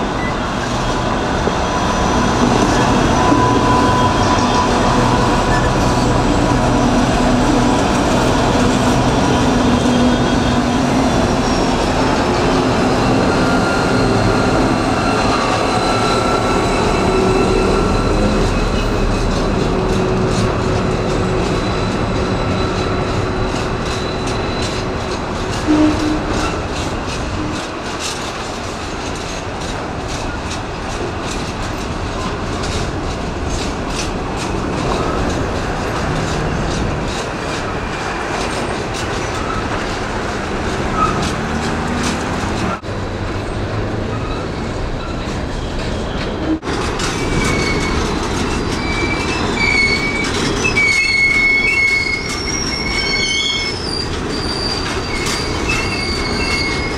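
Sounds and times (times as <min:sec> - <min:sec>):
train wheels clattering on track: 0:00.0 - 0:56.9
high-pitched wheel squeal: 0:00.1 - 0:19.3, 0:21.0 - 0:26.7, 0:40.9 - 0:42.8, 0:44.1 - 0:56.9.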